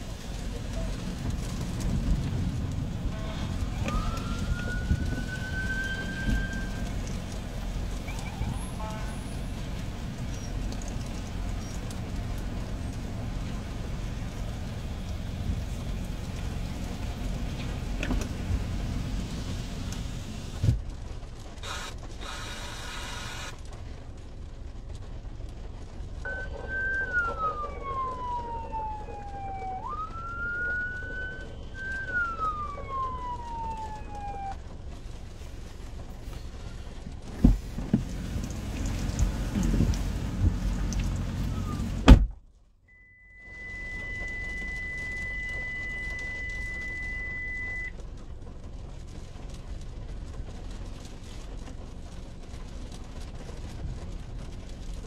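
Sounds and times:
heavy rain drumming on car roof: 0.0s - 42.6s, 43.2s - 55.0s
siren wailing: 3.1s - 7.2s, 26.3s - 34.7s, 41.0s - 42.0s, 43.0s - 47.9s.

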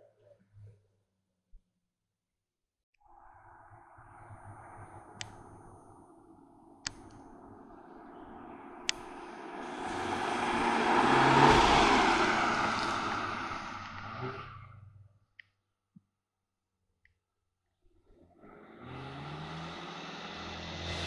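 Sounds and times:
race car driving past: 7.0s - 14.9s, 18.6s - 21.0s.

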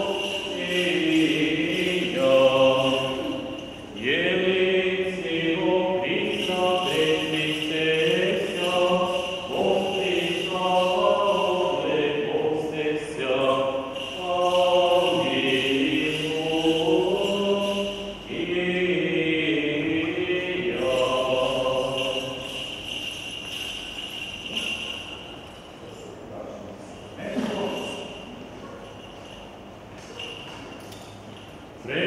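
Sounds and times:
voices chanting a hymn: 0.0s - 25.3s, 31.8s - 32.0s.

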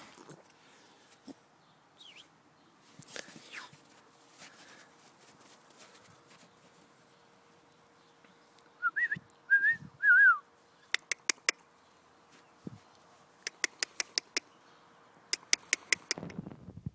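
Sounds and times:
person whistling: 8.8s - 10.4s
sharp clicks: 10.9s - 11.6s, 13.4s - 14.5s, 15.3s - 16.4s.

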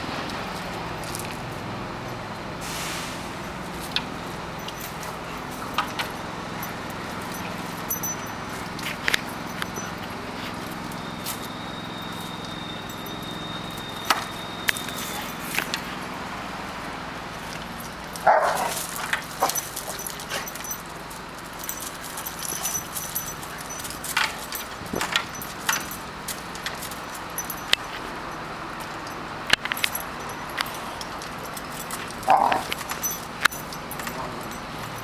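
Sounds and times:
dogs scuffling: 3.3s - 16.1s, 17.3s - 35.0s
dog barking: 18.2s - 18.8s.

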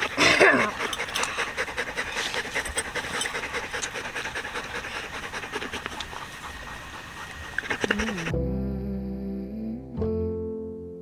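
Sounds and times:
dog panting rapidly: 0.0s - 8.3s.

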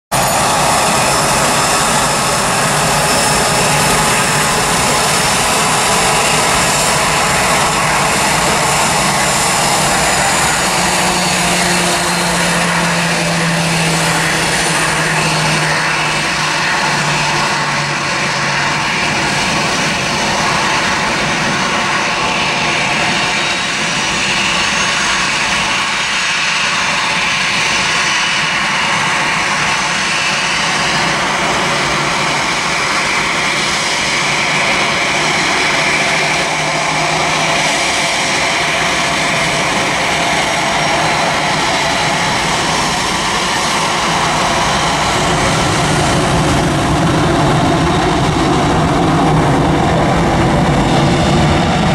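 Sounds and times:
jet engines at high thrust: 0.1s - 51.9s.

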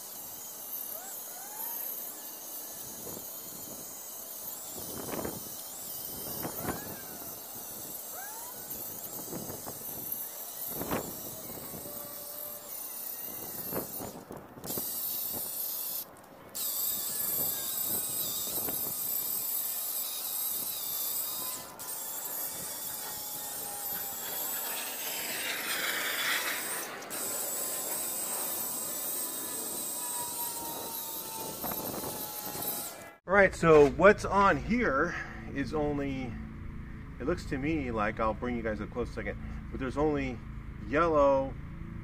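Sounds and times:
angle grinder stripping paint: 0.0s - 33.2s.

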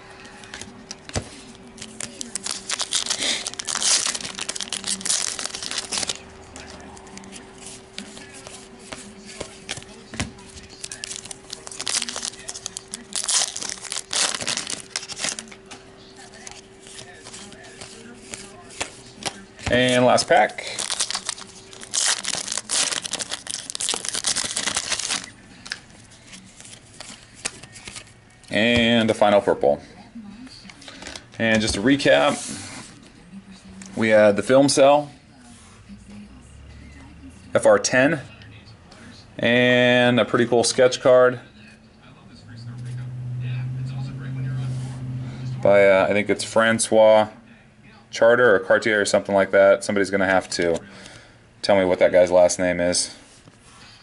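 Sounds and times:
cards being handled: 0.2s - 28.2s
foil wrapper crinkling and tearing: 1.8s - 7.5s, 10.6s - 15.6s, 19.8s - 28.1s.

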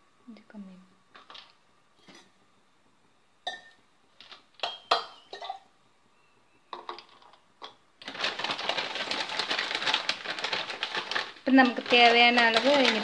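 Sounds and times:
utensils clinking on pan: 4.6s - 5.7s.

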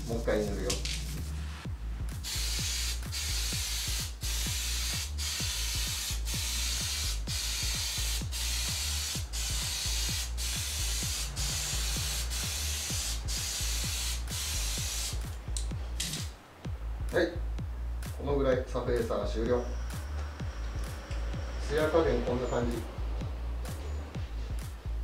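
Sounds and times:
aerosol spray can hissing: 2.2s - 16.3s.

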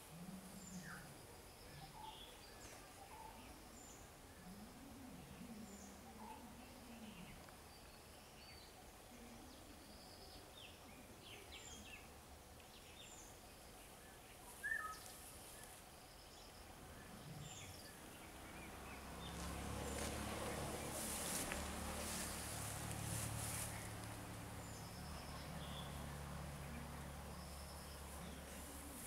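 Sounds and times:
small birds chirping: 0.0s - 29.0s
low hum and rushing noise: 16.7s - 29.0s.

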